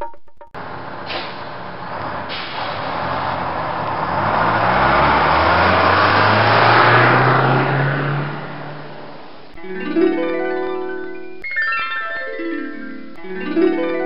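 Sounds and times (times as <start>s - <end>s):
plucked and mallet music: 0.0s - 0.6s, 9.6s - 14.0s
bus engine accelerating: 0.6s - 10.9s.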